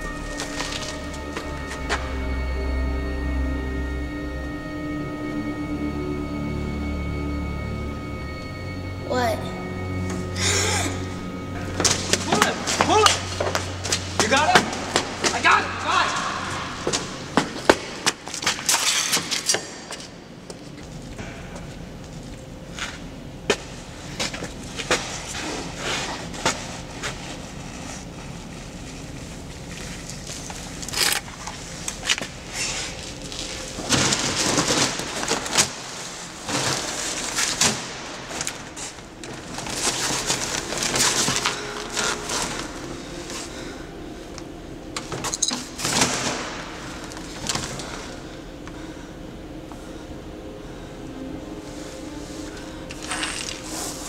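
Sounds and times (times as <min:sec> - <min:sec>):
rustling and handling noise: 0:00.0 - 0:02.1, 0:23.6 - 0:49.0, 0:51.5 - 0:54.0
low steady hum: 0:00.0 - 0:54.0.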